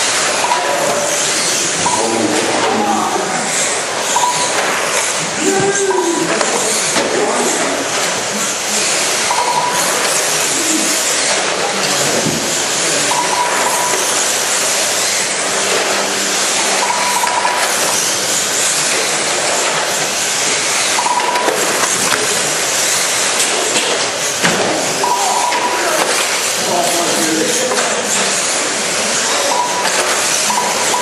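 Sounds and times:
model car motors whining: 0.0 - 31.0
short high beeps: 1.8 - 2.4, 4.1 - 4.6, 9.2 - 10.0, 13.0 - 14.2, 15.6 - 17.8, 21.0 - 21.6, 25.0 - 25.9, 29.5 - 31.0.

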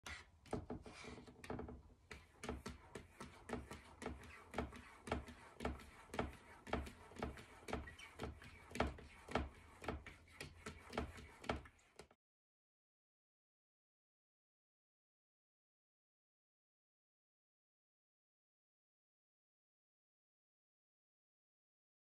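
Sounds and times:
cat paws rubbing on glass: 0.0 - 12.2.

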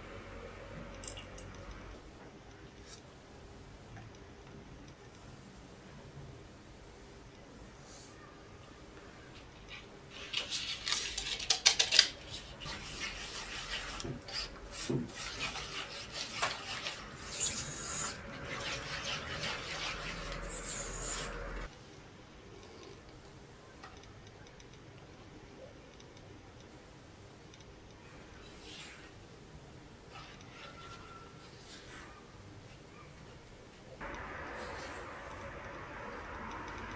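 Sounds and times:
spatula scraping mixing bowl: 12.6 - 21.7.

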